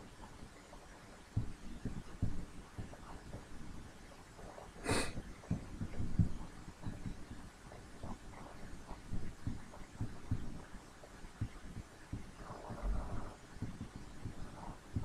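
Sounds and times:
short burst of hiss: 4.8s - 5.1s.

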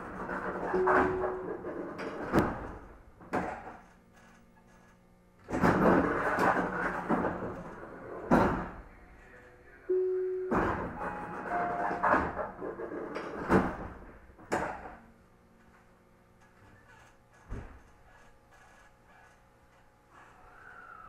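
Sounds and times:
train doors thudding and clattering: 0.2s - 3.8s, 5.4s - 8.9s, 10.4s - 15.0s
short steady tones: 0.8s - 1.8s, 9.9s - 12.0s.

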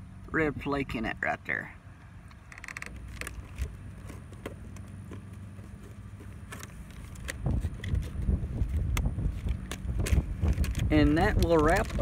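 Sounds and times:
wind buffeting microphone: 7.2s - 12.0s.

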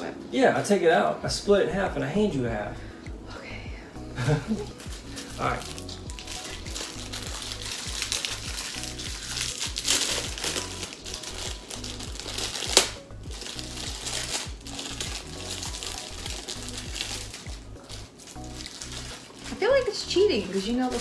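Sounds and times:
background music: 0.0s - 21.0s
sharp foil crackle: 4.2s - 21.0s
foil wrapper crinkling: 4.5s - 21.0s.

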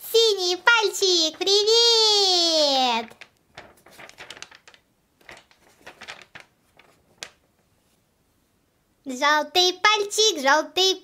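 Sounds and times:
paper rustling on table: 0.5s - 1.9s, 2.9s - 8.1s.

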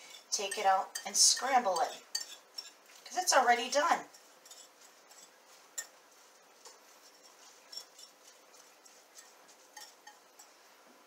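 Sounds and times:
fork clinking against dish: 9.2s - 10.6s.

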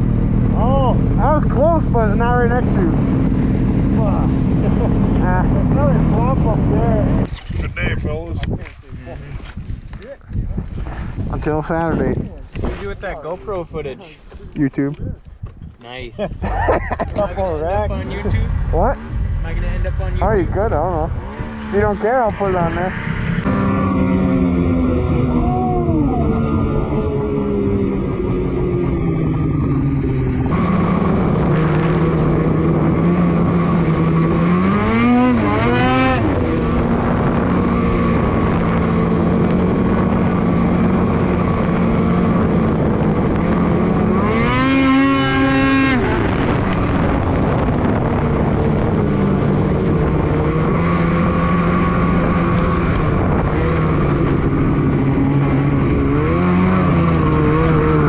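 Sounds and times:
snowmobile engine revving: 0.0s - 7.8s, 16.4s - 58.0s.

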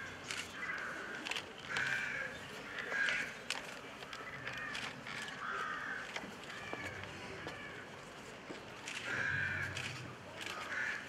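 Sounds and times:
birds cawing: 0.0s - 3.4s, 4.2s - 7.9s, 9.0s - 9.8s, 10.6s - 11.0s.

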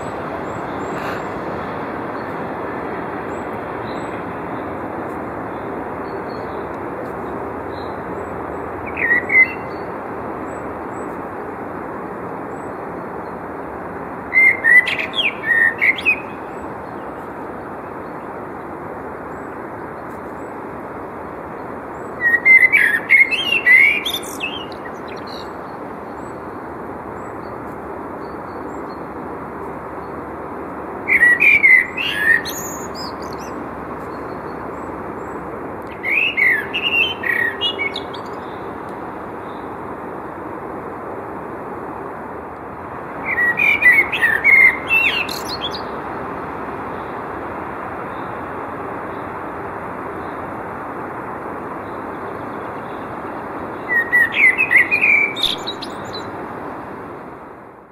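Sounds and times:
steady background rush: 0.0s - 57.9s
blackbird singing: 7.7s - 11.2s, 14.3s - 17.3s, 22.0s - 26.4s, 31.1s - 38.7s, 43.2s - 46.0s, 53.8s - 56.3s.

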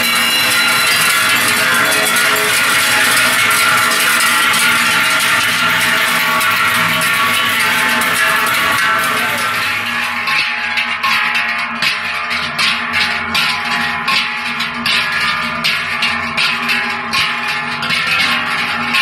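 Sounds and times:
large cowbells clanging: 0.0s - 19.0s.

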